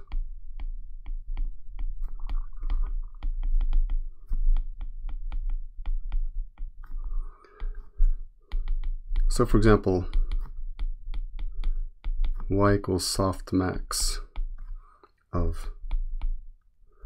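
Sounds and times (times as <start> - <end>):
stylus tapping on glass screen: 0.0 - 12.8, 15.7 - 16.5.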